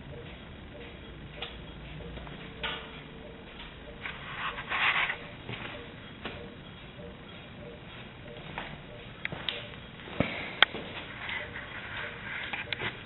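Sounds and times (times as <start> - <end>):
scuffing on concrete floor: 3.5 - 6.4, 7.9 - 13.0.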